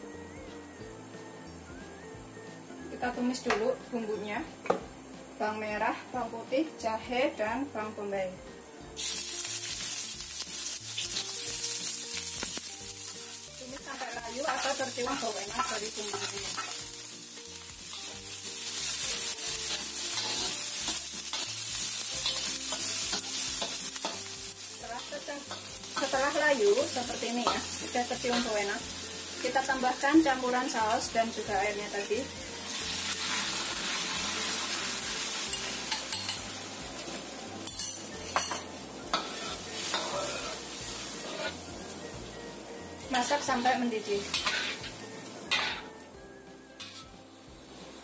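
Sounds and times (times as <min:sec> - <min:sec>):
food sizzling in hot oil: 0:00.0 - 0:48.0
spatula scraping a wok: 0:17.9 - 0:26.3, 0:32.8 - 0:41.8, 0:44.2 - 0:46.0, 0:46.7 - 0:48.0
metal ladle scraping a wok: 0:19.6 - 0:21.5, 0:37.6 - 0:41.7, 0:44.3 - 0:45.9.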